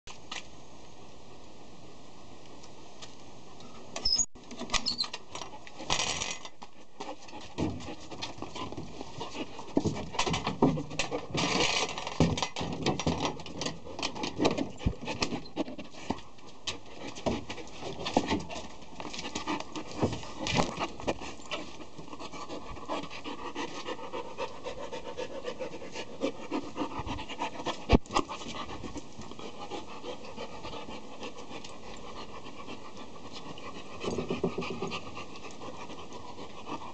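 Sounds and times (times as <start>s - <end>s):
knocks and scrapes: 4.0s - 24.0s, 33.3s - 36.6s
dog panting: 6.6s - 11.6s, 13.0s - 36.9s
paws pattering: 6.6s - 36.9s.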